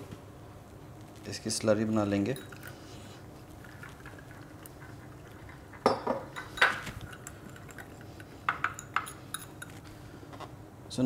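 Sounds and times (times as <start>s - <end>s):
whisk clinking against glass: 2.3s - 2.7s, 3.6s - 9.8s
wire whisk stirring slurry: 2.3s - 9.9s.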